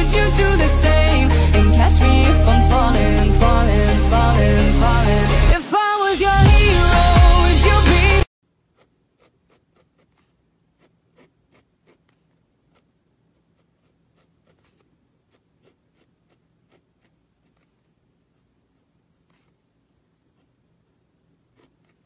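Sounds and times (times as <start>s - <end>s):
drawing tool scratching on paper: 8.6s - 22.0s.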